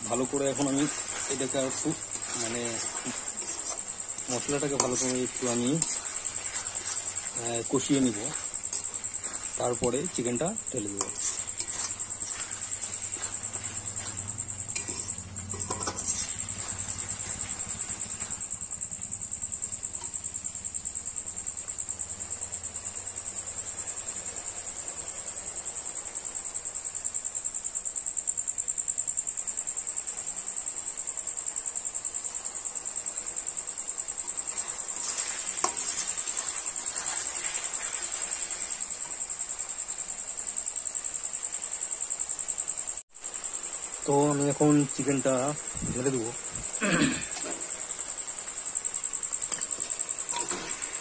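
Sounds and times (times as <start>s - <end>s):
spoon scraping in a pan: 0.0s - 18.5s, 33.9s - 39.5s, 46.0s - 51.0s
cricket trilling: 0.0s - 51.0s
food frying: 0.0s - 51.0s.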